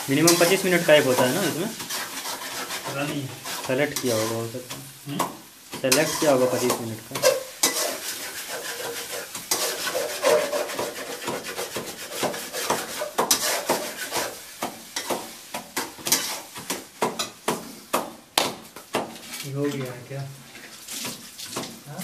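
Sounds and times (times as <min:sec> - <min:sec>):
pestle rubbing in mortar: 0:01.2 - 0:04.2, 0:07.6 - 0:14.4.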